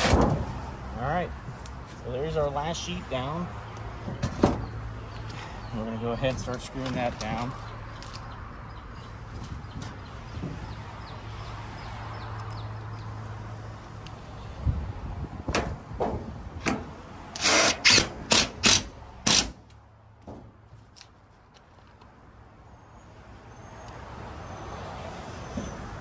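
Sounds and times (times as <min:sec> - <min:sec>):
drill clicks: 0:17.3 - 0:19.6
cordless drill bursts: 0:17.4 - 0:19.5.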